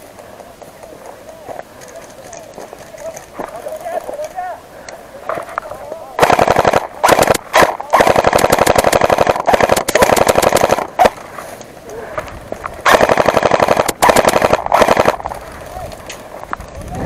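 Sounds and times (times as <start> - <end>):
airsoft rifle firing bursts: 6.2 - 11.3, 12.8 - 15.5.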